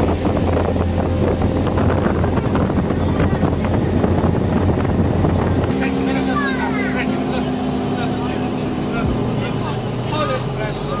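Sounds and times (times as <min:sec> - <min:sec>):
vehicle engine droning: 0:00.0 - 0:11.0
wind buffeting microphone: 0:00.0 - 0:11.0.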